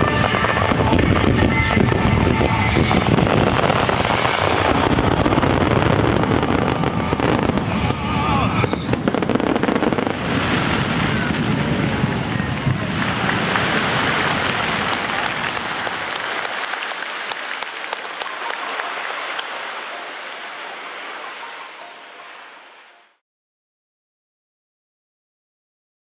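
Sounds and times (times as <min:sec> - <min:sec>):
low rumble: 0:00.0 - 0:16.1
fireworks crackling hiss: 0:00.0 - 0:22.9.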